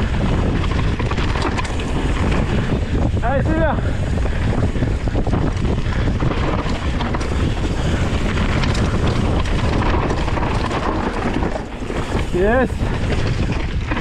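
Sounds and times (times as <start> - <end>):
bike clicks and rattles: 0.0 - 14.0
bike tyres crunching on gravel: 0.0 - 14.0
wind buffeting microphone: 0.0 - 14.0.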